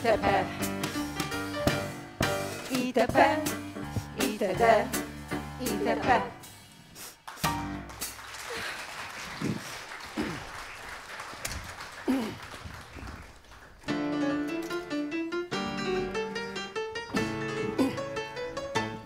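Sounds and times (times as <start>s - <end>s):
piano with band playing: 0.0s - 8.2s, 13.8s - 19.0s
audience applause: 7.3s - 14.0s.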